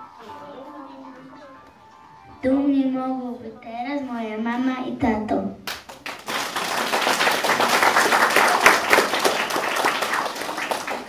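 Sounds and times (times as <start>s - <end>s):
audience applauding: 5.7s - 11.0s.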